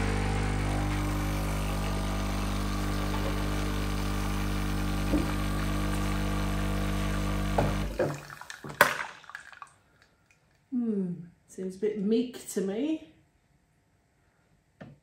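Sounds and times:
espresso machine pump humming: 0.0 - 8.2.

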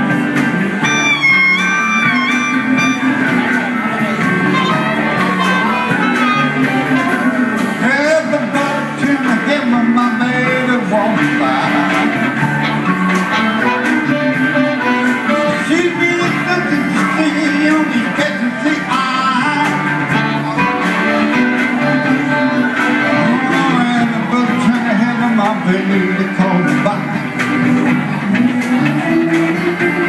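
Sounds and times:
live blues-rock band playing: 0.0 - 30.0
wailing harmonica lead: 0.8 - 7.8.

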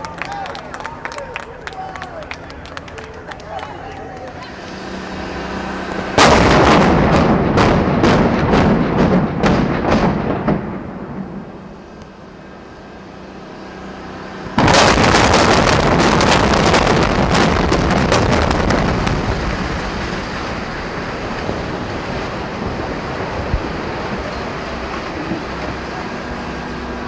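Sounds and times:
building collapsing: 4.4 - 11.8, 14.6 - 26.2
demolition blasts: 4.5 - 13.4, 14.3 - 27.0.

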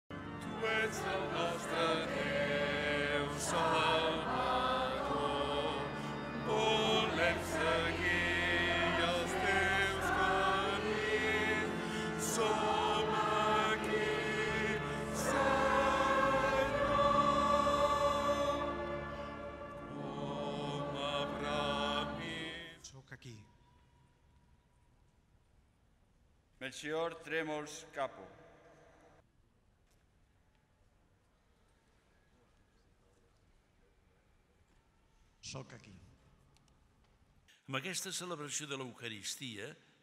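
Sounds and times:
choir singing a hymn: 0.1 - 22.8.

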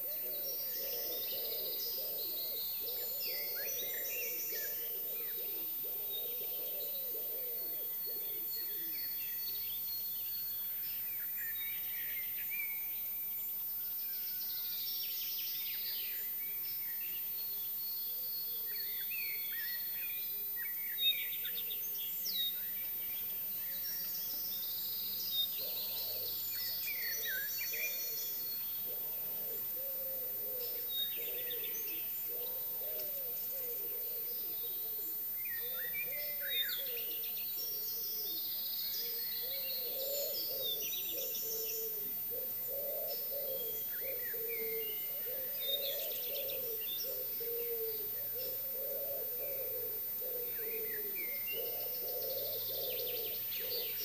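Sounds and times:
pigeon cooing: 0.0 - 8.9, 28.9 - 37.2, 39.0 - 54.0
songbirds singing and calling: 0.0 - 54.0.

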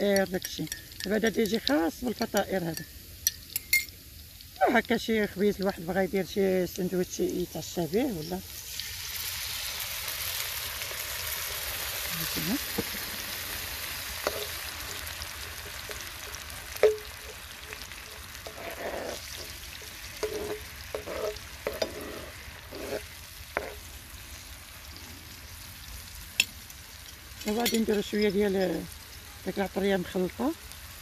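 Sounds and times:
spoon clinking on a pan: 0.0 - 4.0, 14.2 - 23.0, 27.1 - 28.8
sauce sizzling in a frying pan: 0.0 - 31.0
metal spoon scraping a pan: 11.9 - 23.9, 27.0 - 28.8.

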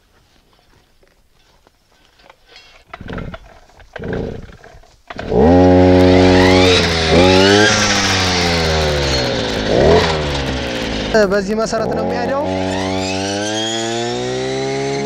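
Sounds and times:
recoil starter pulls: 2.3 - 15.0
small petrol engine running: 5.1 - 15.0.

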